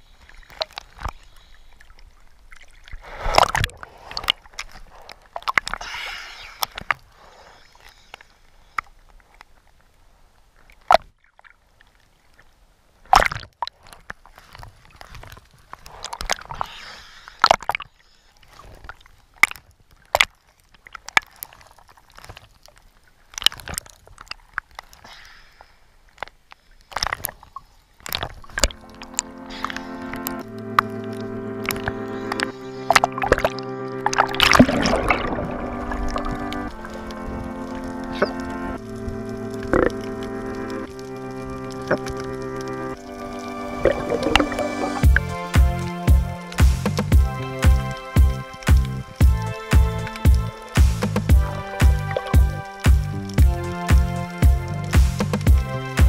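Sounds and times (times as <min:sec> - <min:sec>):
water sloshing underwater: 0:00.0 - 0:45.2
sharp clicks and pops: 0:26.2 - 0:43.0.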